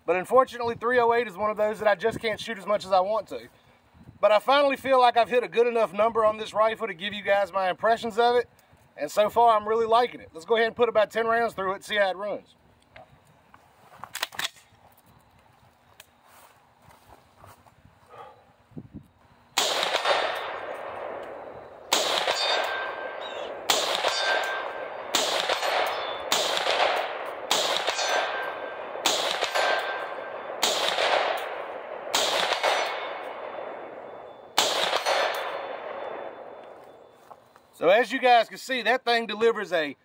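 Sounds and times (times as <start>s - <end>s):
rifle shots with echo: 19.6s - 37.2s
ring of hits on steel plates: 22.3s - 23.2s, 24.0s - 24.9s, 27.8s - 28.8s, 29.5s - 30.4s, 32.6s - 33.3s.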